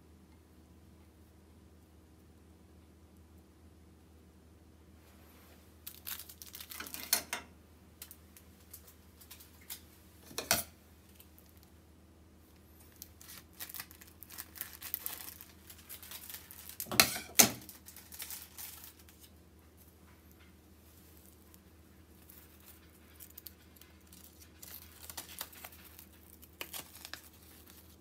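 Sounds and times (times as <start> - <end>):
plastic packaging crinkling and tearing: 5.8 - 7.3, 8.0 - 11.7, 12.8 - 20.0, 20.9 - 28.0.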